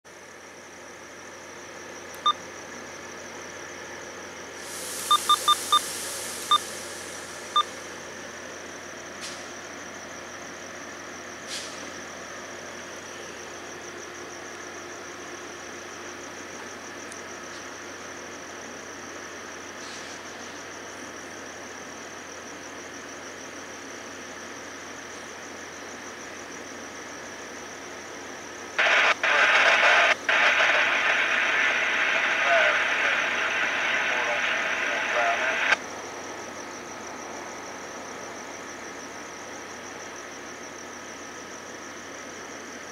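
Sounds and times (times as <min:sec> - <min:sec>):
distant locomotive idling: 0:00.2 - 0:42.8
air hiss: 0:04.6 - 0:07.6, 0:11.4 - 0:11.9
short high electronic beeps: 0:05.1 - 0:05.9
loud harsh noise: 0:28.8 - 0:35.8.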